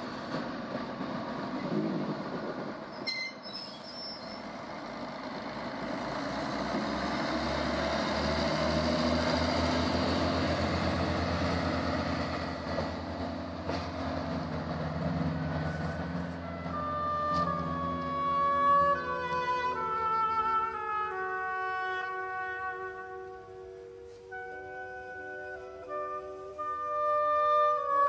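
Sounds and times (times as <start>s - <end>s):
diesel engine throb: 0.0s - 3.5s, 4.2s - 28.0s
high squeal: 2.9s - 4.5s.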